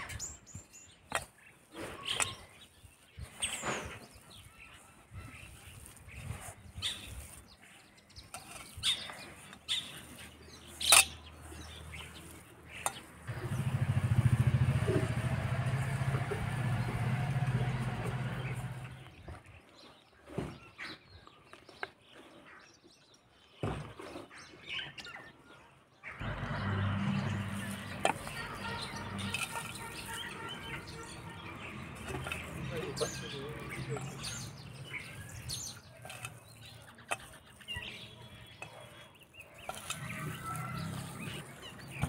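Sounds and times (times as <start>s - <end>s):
birds chirping: 0.0s - 42.0s
motor engine hum: 12.7s - 19.2s, 26.2s - 36.4s.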